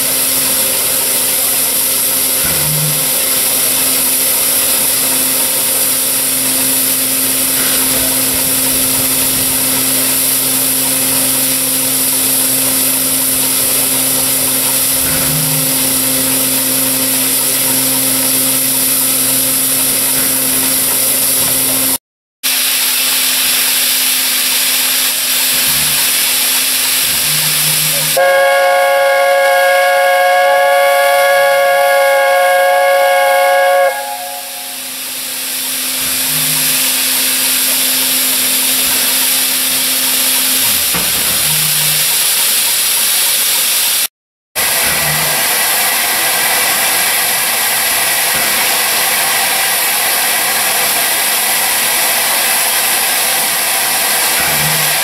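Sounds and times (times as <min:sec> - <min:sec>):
steam locomotive hissing: 0:00.0 - 0:55.0.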